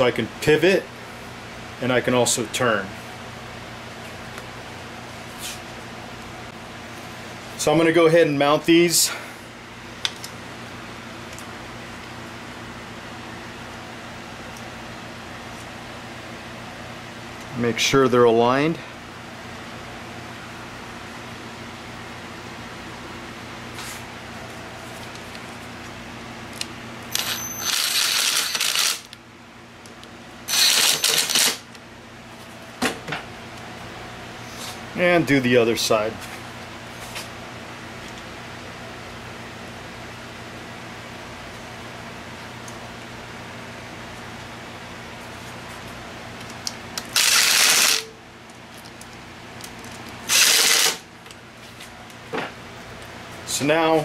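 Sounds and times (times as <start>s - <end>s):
impact driver whining: 27.1s - 29.1s, 30.5s - 31.7s, 47.0s - 48.2s, 50.2s - 51.1s
loud mechanical bursts: 27.1s - 29.1s, 30.5s - 31.7s, 47.1s - 48.1s, 50.2s - 51.1s.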